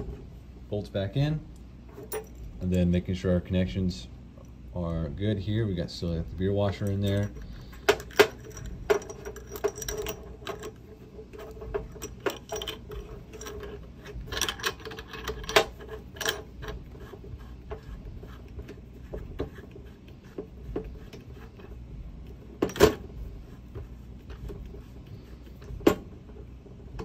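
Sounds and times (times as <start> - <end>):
metal threads clicking and scraping: 6.6 - 27.0.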